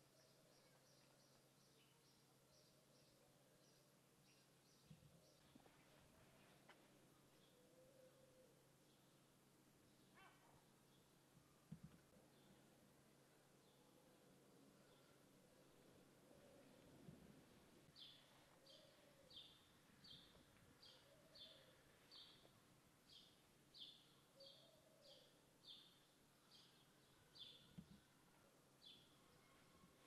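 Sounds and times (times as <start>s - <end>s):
bird chirping: 17.9s - 28.2s.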